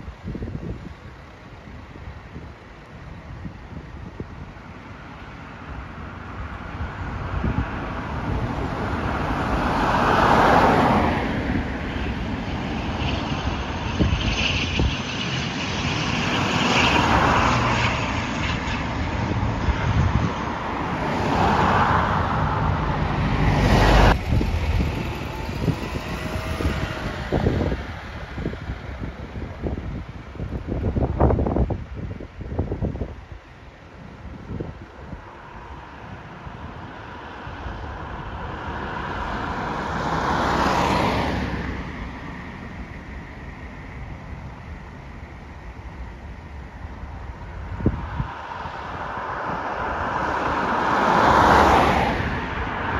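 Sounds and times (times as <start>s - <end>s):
wind buffeting microphone: 0.0s - 52.9s
cars driving past: 5.0s - 31.7s, 34.0s - 52.9s
vehicle passing by: 6.4s - 31.7s, 34.6s - 42.9s, 47.5s - 52.9s.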